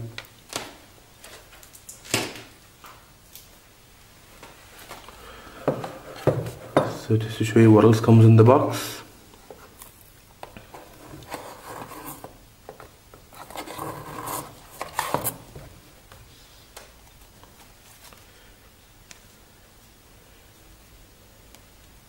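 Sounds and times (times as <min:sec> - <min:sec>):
card surfaces rubbing and scraping: 0:10.8 - 0:12.4, 0:13.3 - 0:15.5.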